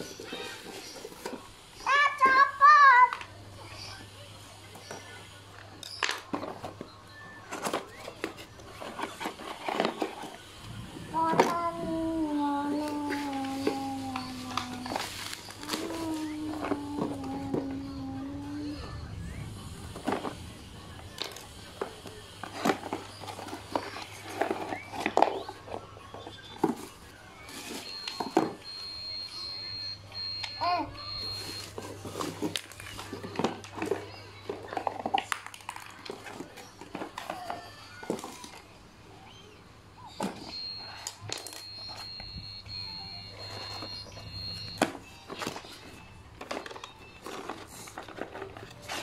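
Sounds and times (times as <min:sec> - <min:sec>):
plastic crinkling: 0:05.8 - 0:28.8, 0:31.0 - 0:38.8, 0:40.2 - 0:42.6, 0:43.3 - 0:49.0
high-pitched beep: 0:40.5 - 0:44.8.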